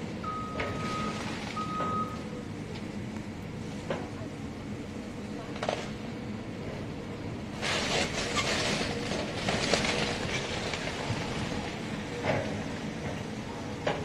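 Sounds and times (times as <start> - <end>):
machinery engine hum: 0.0 - 14.0
debris crunching and cracking: 7.6 - 11.7.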